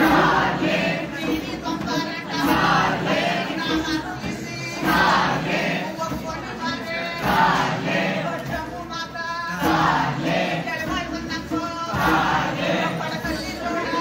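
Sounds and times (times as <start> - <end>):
group singing in chorus: 0.0 - 14.0.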